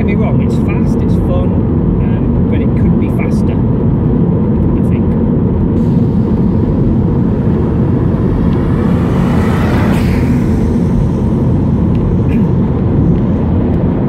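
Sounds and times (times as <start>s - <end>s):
steady low rumble: 0.0s - 14.0s
car driving past: 5.8s - 14.0s.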